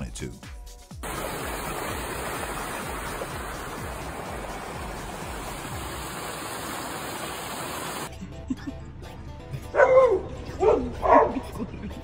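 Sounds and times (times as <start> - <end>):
steady rushing noise: 1.0 - 8.1.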